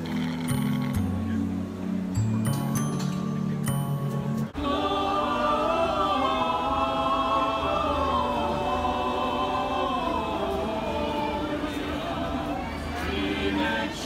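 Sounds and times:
bass-heavy music: 0:00.0 - 0:04.6
choir singing in harmony: 0:04.5 - 0:14.0.

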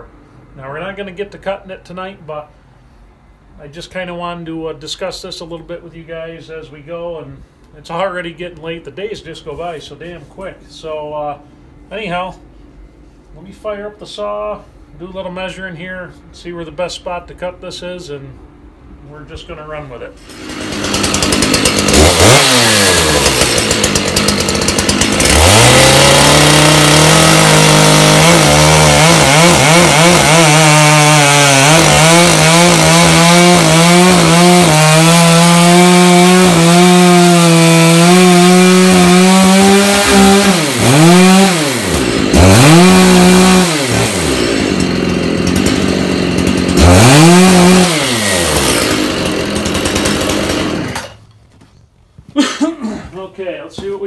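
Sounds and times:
chainsaw revving and cutting: 0:20.2 - 0:51.2.

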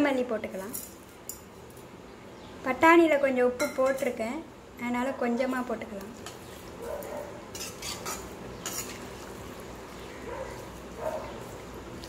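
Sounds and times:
spoon stirring food in pan: 0:06.0 - 0:06.8, 0:07.4 - 0:12.0
spoon scraping and clinking pan: 0:07.5 - 0:09.0.

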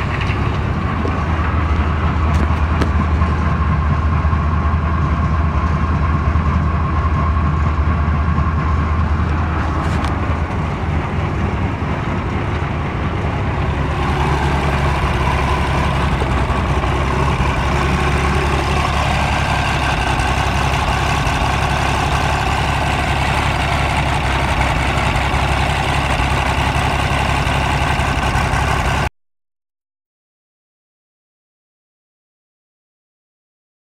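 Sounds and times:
diesel engine running: 0:00.0 - 0:29.1.

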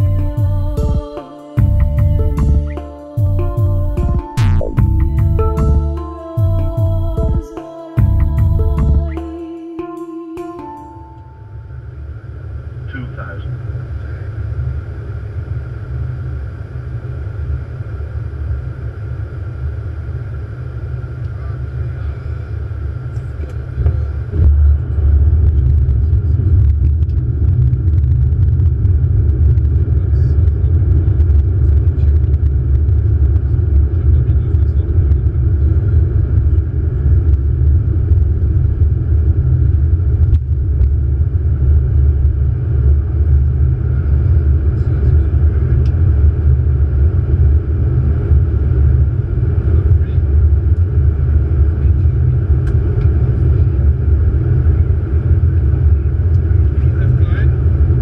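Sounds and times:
airflow and jet engine rumble: 0:11.0 - 0:58.0.

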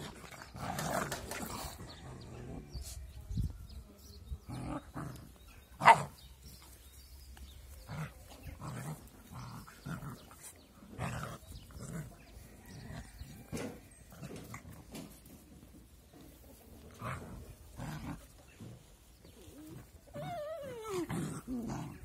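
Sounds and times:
puppies growling and yipping: 0:04.4 - 0:22.0.

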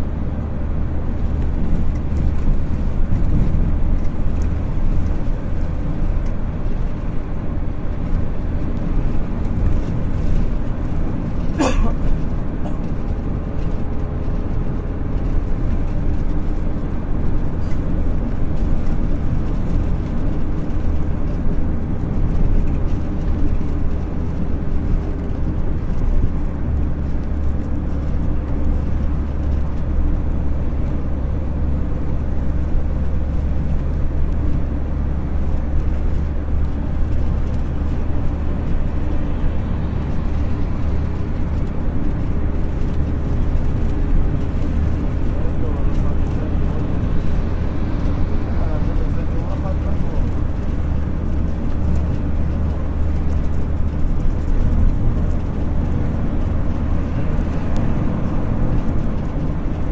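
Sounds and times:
vehicle road and engine rumble: 0:00.0 - 0:59.9.

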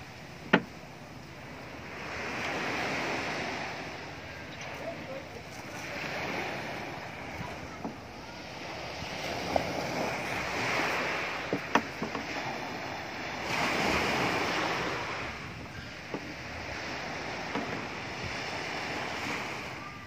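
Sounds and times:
waves washing on pebbles: 0:01.4 - 0:19.8.

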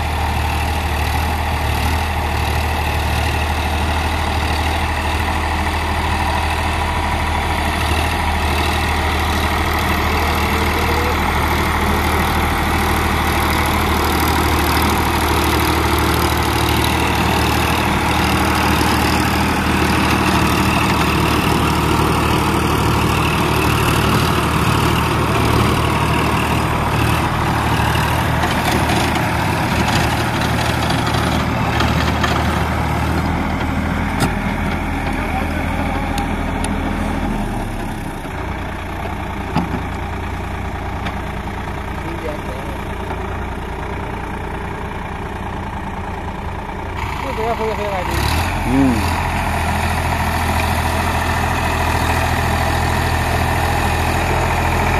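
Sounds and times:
rotary tiller churning soil: 0:00.0 - 0:43.4
tractor diesel engine running: 0:00.0 - 0:54.9.

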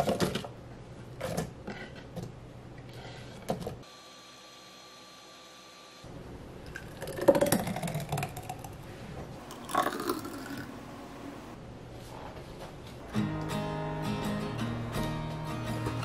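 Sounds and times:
blender whirring: 0:03.8 - 0:06.1
smoothie pouring into glass: 0:09.4 - 0:10.9.

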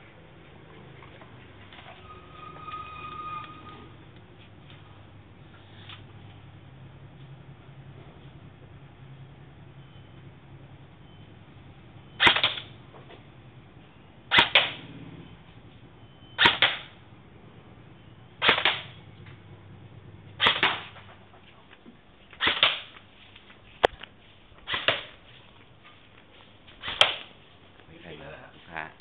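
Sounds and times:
airsoft rifle single shots: 0:12.2 - 0:12.7, 0:14.3 - 0:14.8, 0:16.4 - 0:17.0, 0:18.4 - 0:18.9, 0:20.4 - 0:21.0, 0:22.4 - 0:22.9, 0:24.7 - 0:25.1, 0:26.8 - 0:27.3.

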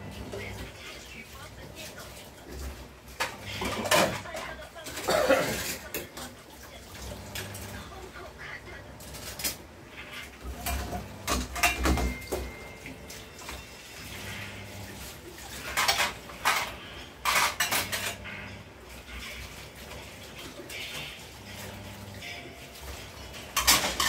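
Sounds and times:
cutlery clinking against dishes: 0:10.5 - 0:13.6, 0:15.6 - 0:18.6, 0:23.4 - 0:24.0.

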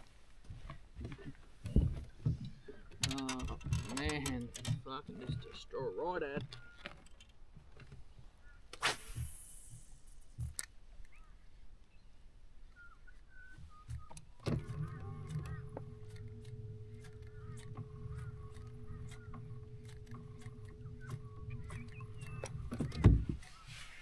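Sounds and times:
brief hiss: 0:08.7 - 0:10.4
small clicks: 0:13.1 - 0:23.5
electric motor humming: 0:14.5 - 0:23.0.

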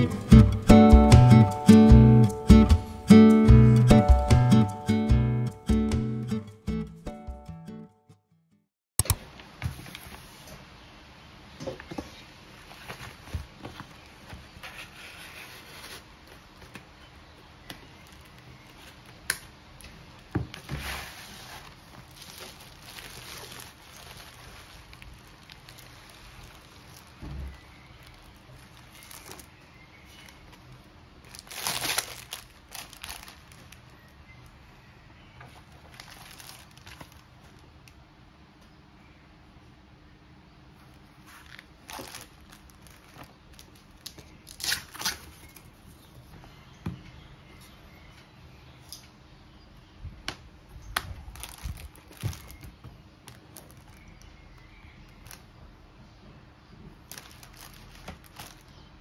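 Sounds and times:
plastic packaging crinkling: 0:12.5 - 0:34.1, 0:35.5 - 0:37.7, 0:41.0 - 0:45.8, 0:50.9 - 0:55.5, 0:57.0 - 0:58.9.

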